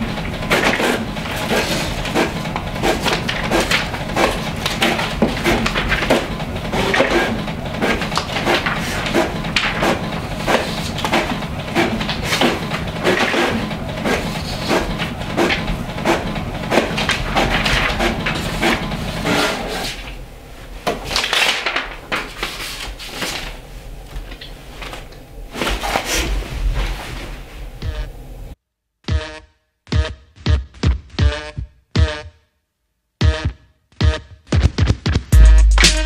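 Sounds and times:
paper pages rustling: 0.0s - 27.8s.

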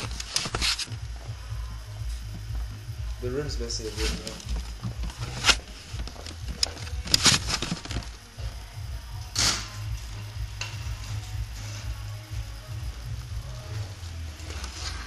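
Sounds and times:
muffled music with deep bass: 0.0s - 15.0s.

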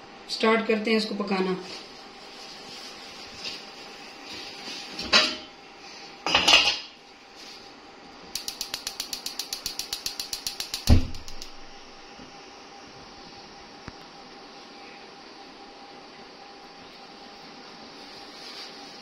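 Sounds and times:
gas igniter clicking: 8.4s - 11.8s
gas burner igniting whump: 10.3s - 12.0s.

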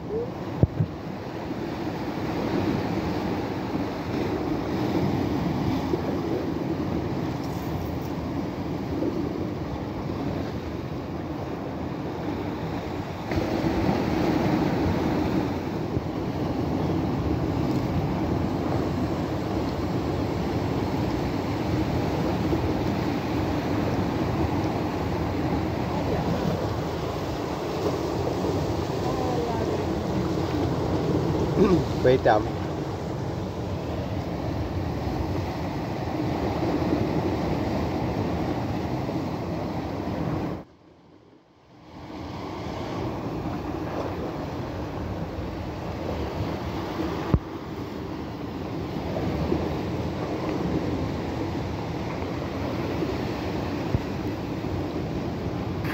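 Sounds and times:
sea surf: 0.0s - 55.9s
wind: 0.0s - 55.9s.

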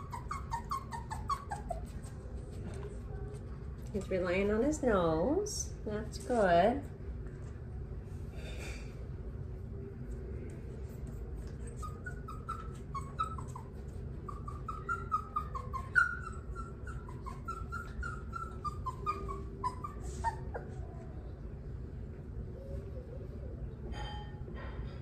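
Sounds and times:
puppy whining: 0.0s - 4.1s, 10.7s - 21.5s, 22.4s - 24.1s.

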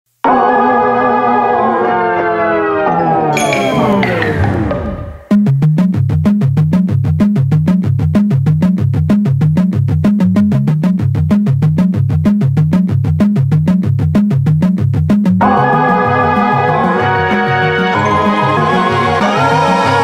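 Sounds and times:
electronic synthesizer music: 2.3s - 5.4s.

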